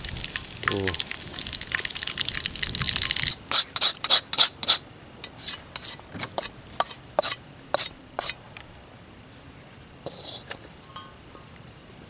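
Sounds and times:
fish frying in oil: 0:00.0 - 0:06.0
short sharp sizzle bursts: 0:00.0 - 0:08.4.

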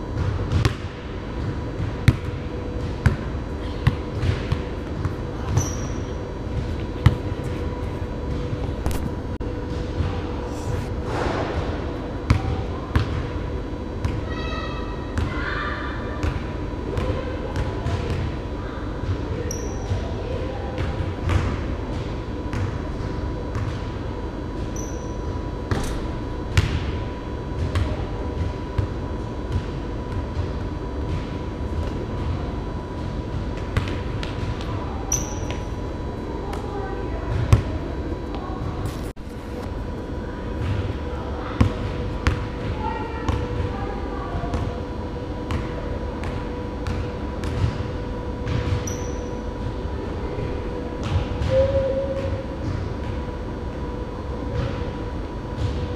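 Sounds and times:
low hum of hall: 0:00.0 - 0:55.9
basketball bouncing on hardwood floor: 0:00.2 - 0:00.9.

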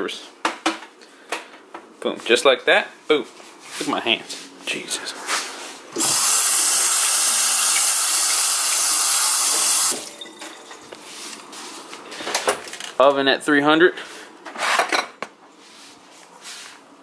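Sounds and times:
hand rinsed under water: 0:06.0 - 0:10.8
faucet running into metal sink: 0:06.0 - 0:10.9.

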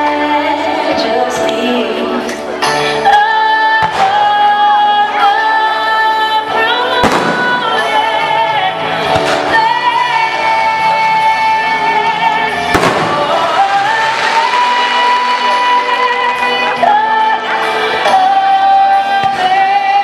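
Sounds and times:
music with long held notes: 0:00.0 - 0:20.0
fireworks bangs: 0:07.0 - 0:08.0, 0:12.7 - 0:16.7.

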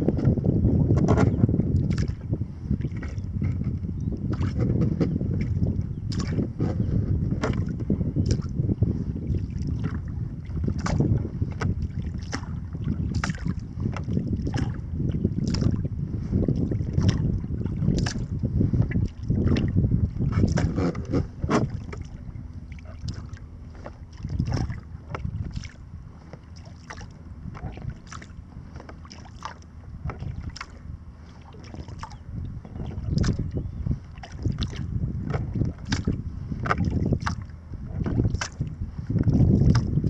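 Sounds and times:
water lapping against kayak hull: 0:00.0 - 0:40.0
wind rumbling on microphone: 0:00.0 - 0:40.0
small splashes: 0:21.6 - 0:24.9, 0:25.5 - 0:32.2.

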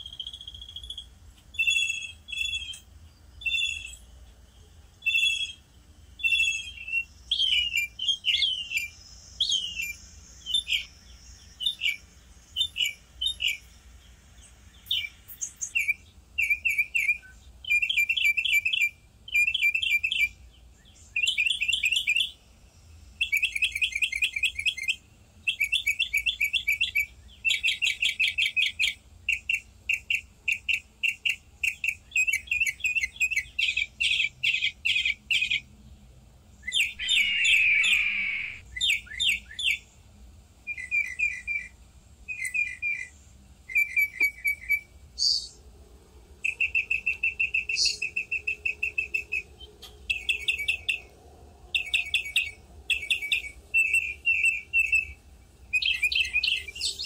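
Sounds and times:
songbirds chirping: 0:00.0 - 0:57.0
harsh scratchy bird call: 0:36.7 - 0:38.6.

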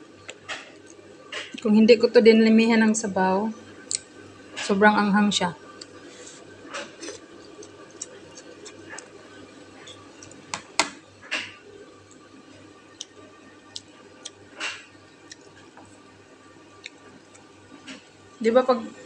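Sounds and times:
faint low hum: 0:00.0 - 0:19.0
soft mouth noises: 0:05.8 - 0:10.4.

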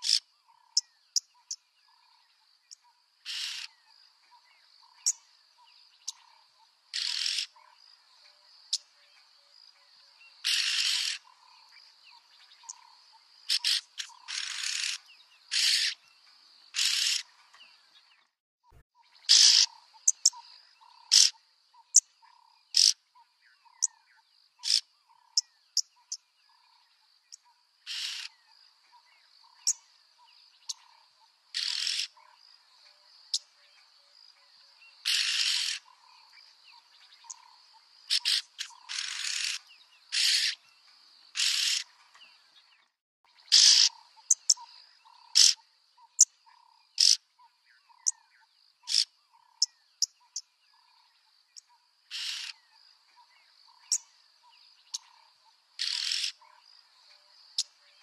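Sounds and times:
sharp bird ticks: 0:00.0 - 0:00.2, 0:21.0 - 0:22.0, 0:22.8 - 0:23.0, 0:24.6 - 0:24.8, 0:43.5 - 0:45.6, 0:47.0 - 0:47.2, 0:48.9 - 0:50.4
insect chorus: 0:00.0 - 0:18.2, 0:19.0 - 0:58.0
birds giving harsh calls: 0:07.0 - 0:07.5, 0:13.5 - 0:16.0, 0:38.1 - 0:40.6, 0:43.5 - 0:44.6, 0:45.3 - 0:45.6, 0:48.9 - 0:49.1, 0:52.1 - 0:52.5, 0:55.8 - 0:56.3.

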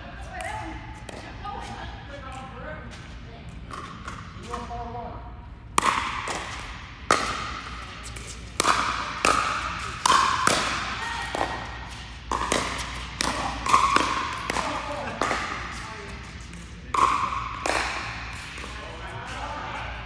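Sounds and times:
paddles striking pickleball: 0:00.4 - 0:01.3, 0:03.7 - 0:04.8, 0:05.7 - 0:19.4
ball bouncing on court: 0:03.7 - 0:04.8, 0:05.8 - 0:19.0.

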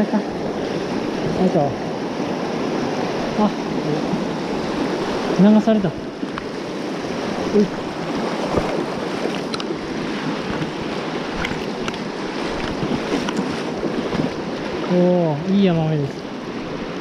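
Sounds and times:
stream rushing over rocks: 0:00.0 - 0:17.0.

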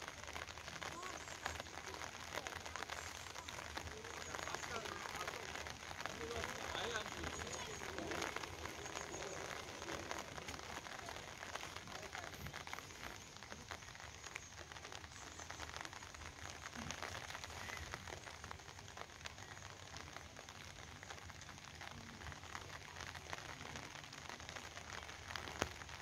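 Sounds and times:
steady rain falling: 0:00.0 - 0:26.0.

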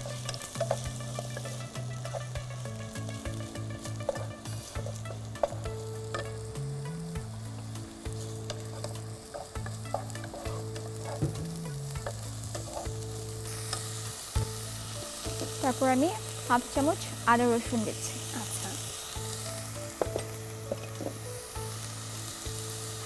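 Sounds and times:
wooden spoon scraping and tapping pan: 0:00.0 - 0:02.5, 0:03.9 - 0:06.4, 0:08.1 - 0:13.0, 0:19.9 - 0:21.3
onion paste sizzling in oil: 0:00.0 - 0:23.0.

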